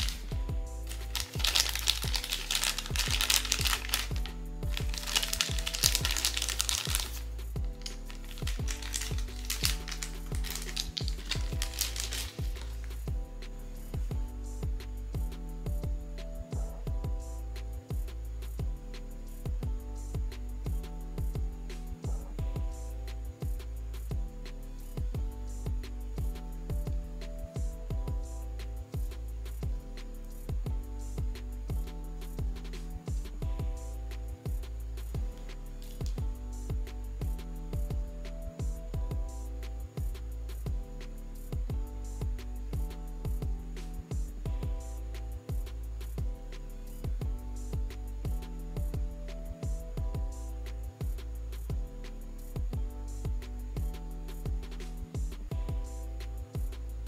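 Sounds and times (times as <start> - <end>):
packaging crinkling: 0.0 - 0.3, 0.9 - 12.9
background music with beat: 0.0 - 57.0.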